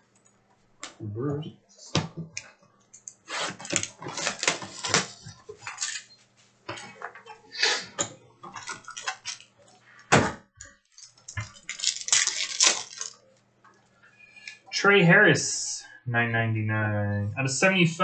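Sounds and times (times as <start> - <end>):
cards and packaging rustling: 3.4 - 6.1, 11.0 - 13.2.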